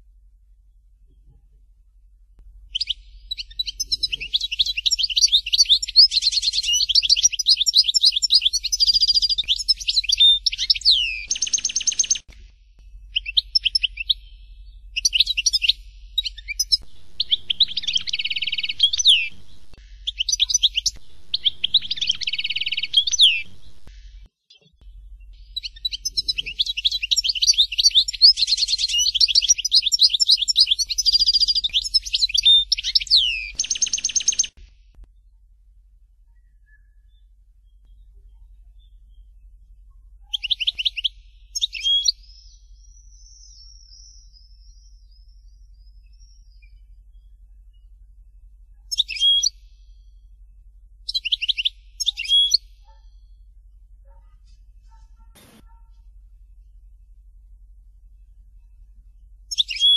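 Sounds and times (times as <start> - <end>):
finch singing high twitters: 2.7 - 12.2, 13.1 - 34.5, 40.3 - 46.8, 48.9 - 49.6, 51.1 - 53.3, 59.5 - 59.9.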